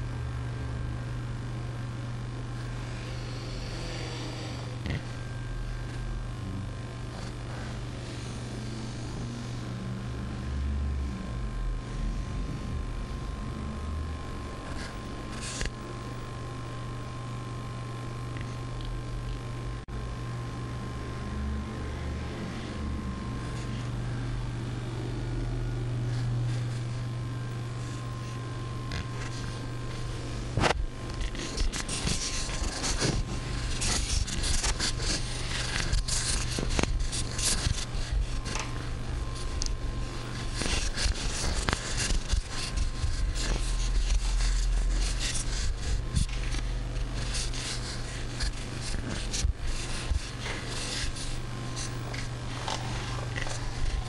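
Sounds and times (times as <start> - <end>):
low electrical hum: 0.0 - 54.0
close rubbing and scratching: 14.6 - 15.8, 27.7 - 54.0.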